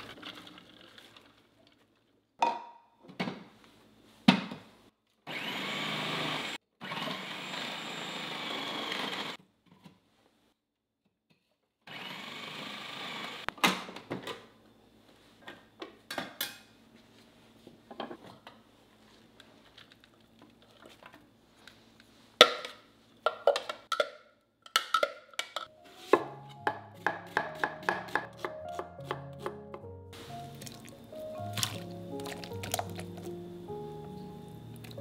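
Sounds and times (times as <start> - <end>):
soft background music: 25.7 - 35.0.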